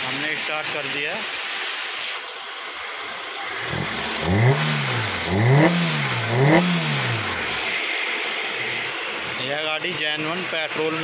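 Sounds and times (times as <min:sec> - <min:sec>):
car engine idling and revving: 0:03.4 - 0:11.0.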